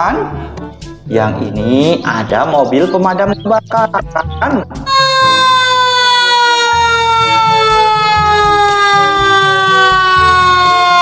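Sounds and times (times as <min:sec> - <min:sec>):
fire engine siren: 0:04.9 - 0:11.0.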